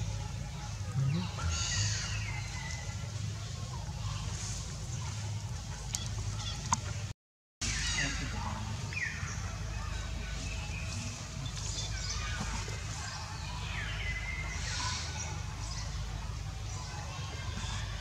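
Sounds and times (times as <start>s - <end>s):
steady low rumble: 0.0s - 7.1s.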